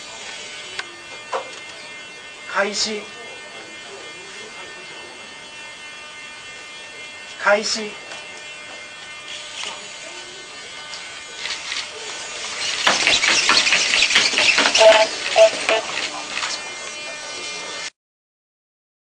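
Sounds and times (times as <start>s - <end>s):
robot servo motors whirring: 10.8s - 17.9s.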